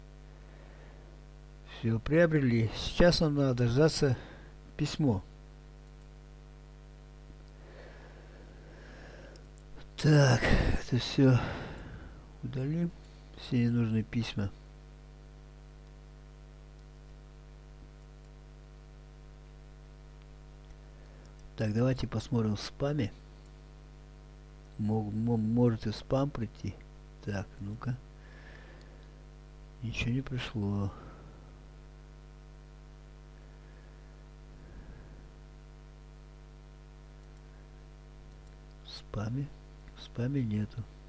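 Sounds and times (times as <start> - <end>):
faint electrical mains hum: 0.0 - 41.0
faint clicks: 5.8 - 6.1, 9.3 - 9.7, 20.2 - 21.6, 38.2 - 38.8.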